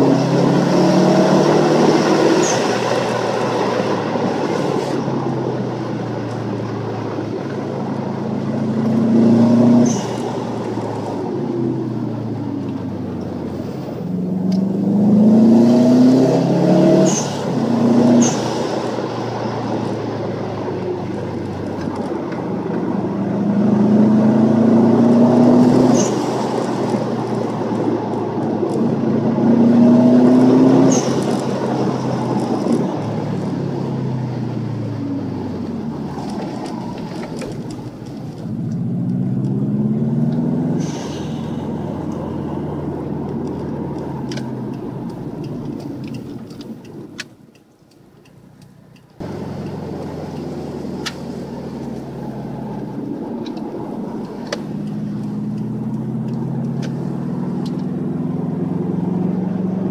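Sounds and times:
turbocharged car engine revving: 0:00.0 - 0:47.1, 0:49.1 - 0:59.9
blow-off valve hissing whoosh: 0:40.7 - 0:42.0.

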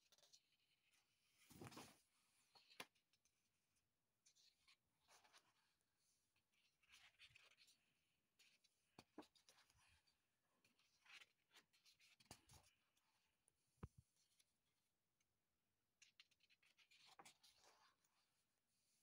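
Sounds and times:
paper pages rustling: 0:01.5 - 0:02.0.

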